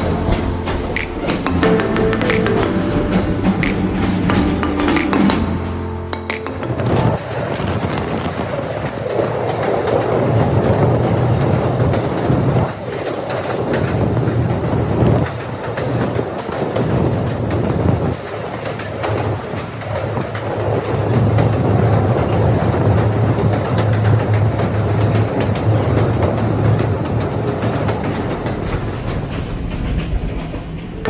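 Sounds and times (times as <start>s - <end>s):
track clicks: 0.0s - 7.6s
train wheels rumbling on rails: 0.0s - 31.0s.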